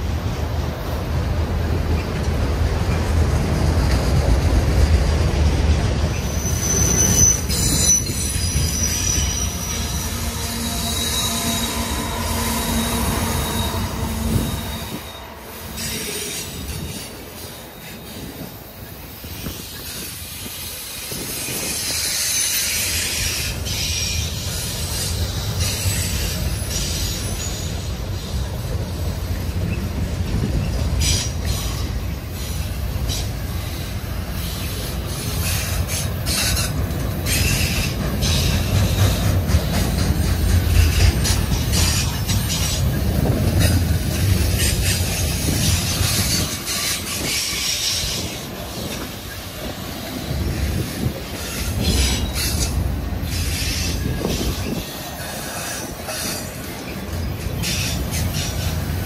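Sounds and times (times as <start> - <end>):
freight train rolling past: 0.0 - 59.0
high-pitched wheel squeal: 6.1 - 18.4.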